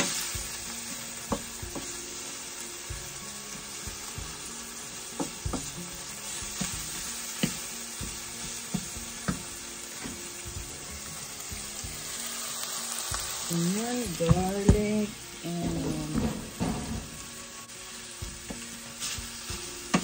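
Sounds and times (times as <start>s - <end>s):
vegetables sizzling in a pot: 0.0s - 20.0s
wooden spatula knocking on pot: 5.2s - 5.8s, 14.2s - 14.9s, 15.5s - 17.2s.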